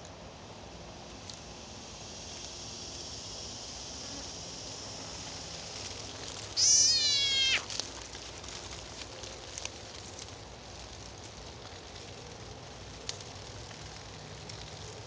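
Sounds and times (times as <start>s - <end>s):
frog distress scream: 6.6s - 7.8s.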